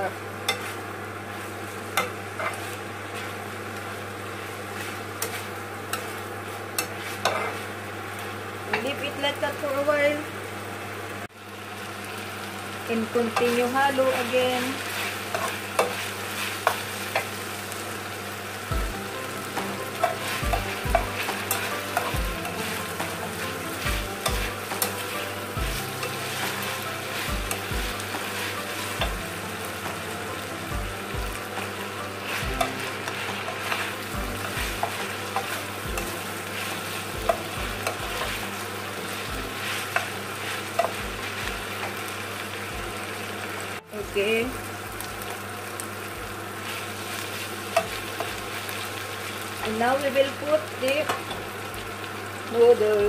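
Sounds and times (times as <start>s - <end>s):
vegetables sizzling in a frying pan: 0.0s - 53.0s
spatula clicking and scraping pan: 2.0s - 3.3s, 4.8s - 6.2s, 6.8s - 7.6s, 14.8s - 17.4s, 19.5s - 29.2s, 32.2s - 42.0s, 47.2s - 48.8s.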